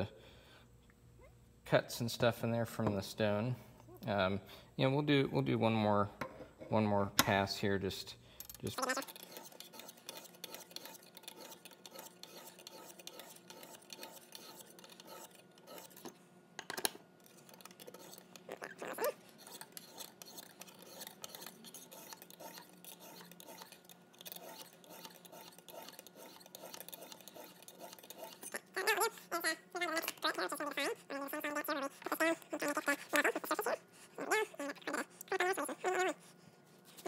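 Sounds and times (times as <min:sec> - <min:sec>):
faint steady hum: 0:00.0 - 0:37.0
stone scraping on steel: 0:08.7 - 0:16.0, 0:17.2 - 0:28.6.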